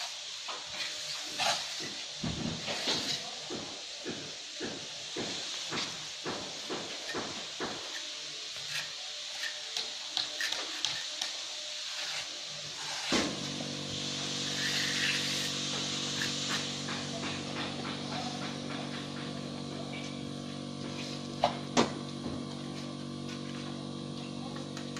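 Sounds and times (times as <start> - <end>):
trowels scraping and tapping mortar: 0.0 - 13.4, 14.4 - 20.2.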